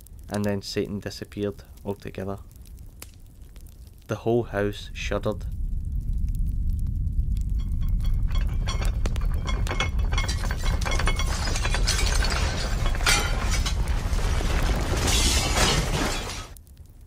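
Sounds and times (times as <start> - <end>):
deep continuous rumble: 1.6 - 16.6
loud crashes: 7.5 - 16.6
glass clinking and shattering: 7.6 - 16.6.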